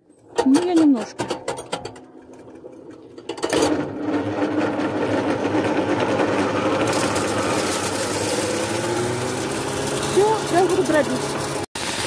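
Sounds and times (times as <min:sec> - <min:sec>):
electric motor spinning up: 0:03.6 - 0:12.0.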